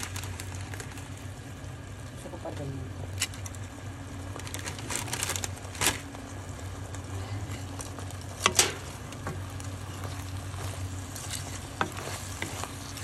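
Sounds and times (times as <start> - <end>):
broth sizzling: 0.0 - 13.0
steady low hum: 0.0 - 13.0
spatula stirring noodles in pan: 7.5 - 13.0.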